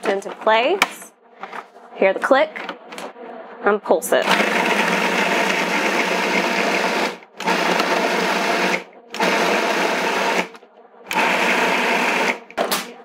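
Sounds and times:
food processor motor pulsing: 0:04.2 - 0:10.5, 0:11.1 - 0:12.6.

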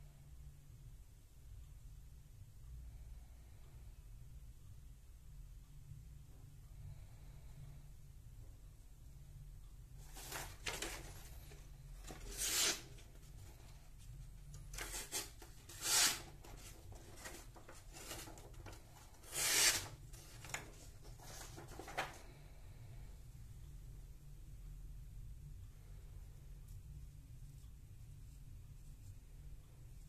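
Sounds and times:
paper rustling: 0:10.0 - 0:13.6, 0:14.6 - 0:22.3
knife slicing through paper: 0:12.1 - 0:13.0, 0:14.8 - 0:17.4, 0:19.2 - 0:19.9.

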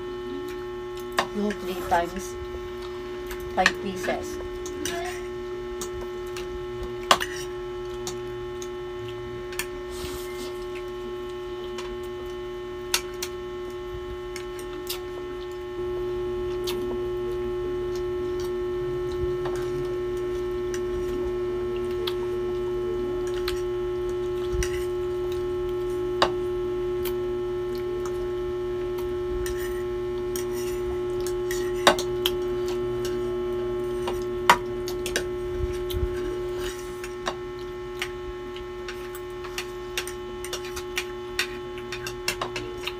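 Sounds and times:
steady hum: 0:00.0 - 0:42.9
cutlery clicking against plates: 0:39.5 - 0:42.9.

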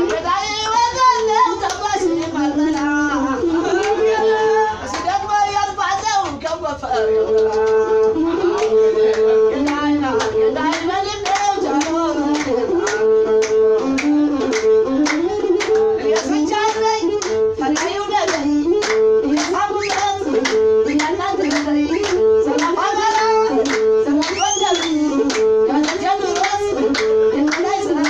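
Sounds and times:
rhythmic hand-clapping: 0:00.0 - 0:04.2, 0:04.8 - 0:28.0
person singing: 0:06.9 - 0:28.0.

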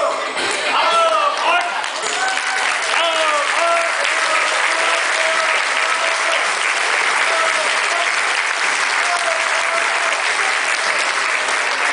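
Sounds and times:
short calls from audience: 0:00.0 - 0:11.9
audience applauding: 0:00.7 - 0:11.9.

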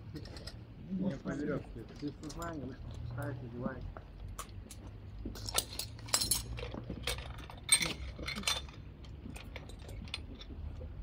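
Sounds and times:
metal hardware clinking: 0:05.4 - 0:10.5.

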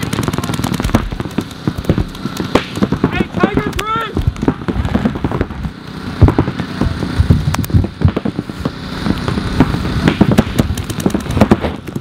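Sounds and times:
paintball markers firing: 0:00.0 - 0:05.5, 0:07.5 - 0:12.0
paintballs hitting inflatable bunkers: 0:00.0 - 0:12.0.

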